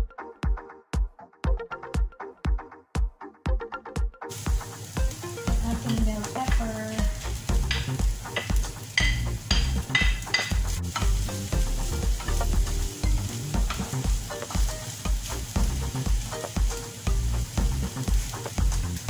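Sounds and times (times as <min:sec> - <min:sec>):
background music with low beat: 0:00.0 - 0:19.0
chicken and peppers sizzling in pan: 0:04.3 - 0:19.0.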